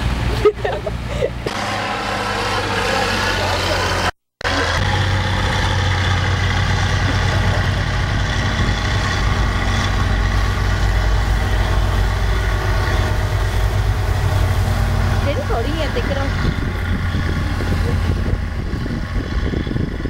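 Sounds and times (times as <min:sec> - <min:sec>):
truck engine idling: 0:00.0 - 0:20.0.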